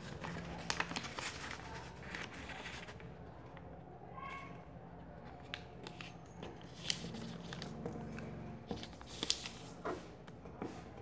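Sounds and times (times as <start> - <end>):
paper folding and crackling: 0.0 - 3.2, 5.2 - 10.2.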